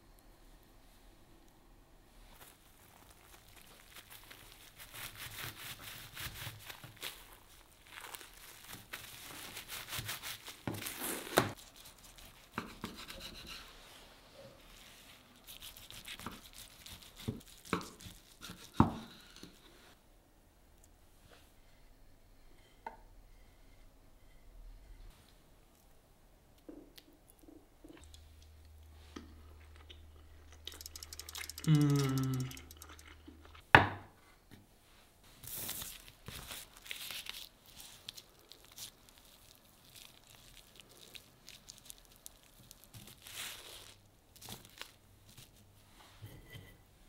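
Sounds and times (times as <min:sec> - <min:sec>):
nori sheet crinkling: 0:02.3 - 0:12.5, 0:35.3 - 0:45.7
voice-like hum: 0:31.6 - 0:32.7.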